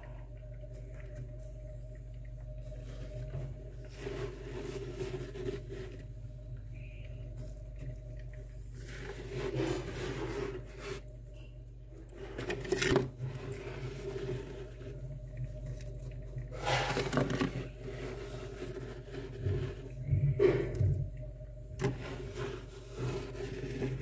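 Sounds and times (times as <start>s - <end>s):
fingers scraping freezer frost: 21.8s - 24.0s.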